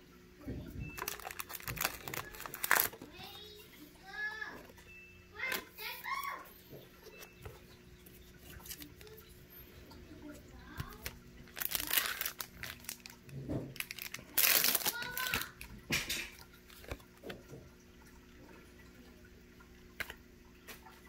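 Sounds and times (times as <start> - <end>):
foil wrapper crinkling: 0.9 - 3.4, 8.4 - 9.2, 10.8 - 15.7
cards rustling: 1.0 - 3.1, 8.4 - 9.2, 10.8 - 15.7.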